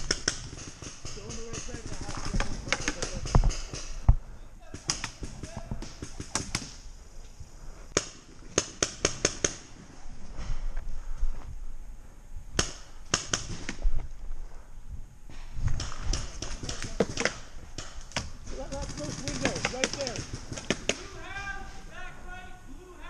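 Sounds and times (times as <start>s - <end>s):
paintball markers firing: 0.0s - 4.0s, 4.7s - 6.8s, 7.9s - 9.6s, 12.6s - 13.8s, 15.7s - 21.1s.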